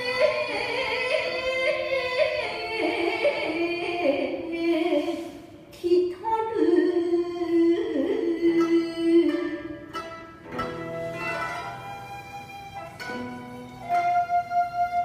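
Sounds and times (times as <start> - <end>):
plucked strings: 7.8 - 15.0.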